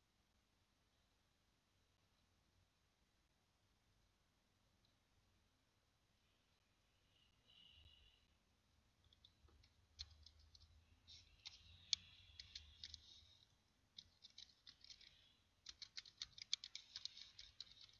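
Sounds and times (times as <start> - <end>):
computer mouse clicks: 9.1 - 17.9
keyboard typing: 9.1 - 17.9.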